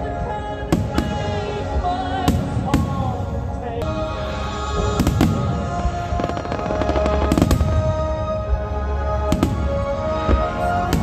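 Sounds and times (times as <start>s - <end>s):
music with held notes: 0.0s - 11.0s
firework crackling: 4.4s - 8.2s.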